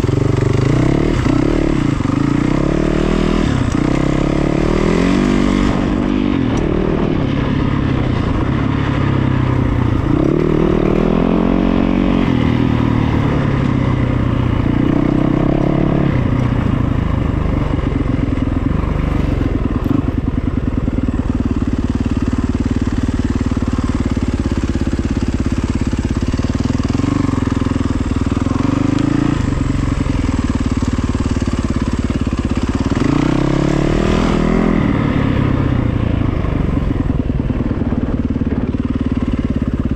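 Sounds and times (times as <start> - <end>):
vehicle engine revving: 0.0 - 9.0.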